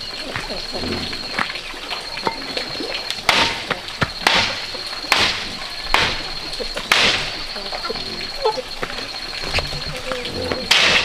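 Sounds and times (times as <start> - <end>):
hammer striking bamboo rail: 3.3 - 7.3, 10.7 - 11.0.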